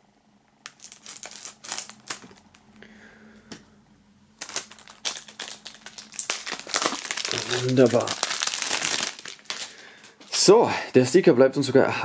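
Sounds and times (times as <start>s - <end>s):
plastic film crackling: 0.6s - 2.8s, 4.4s - 10.4s
knife slitting plastic wrap: 0.7s - 2.5s, 4.4s - 9.8s.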